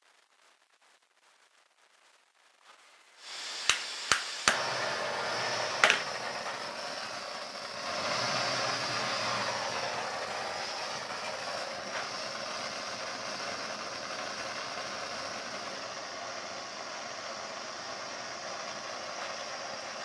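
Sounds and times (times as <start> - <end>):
torch flame hissing: 2.6 - 20.0
igniter clicks: 3.6 - 4.8, 5.7 - 6.6.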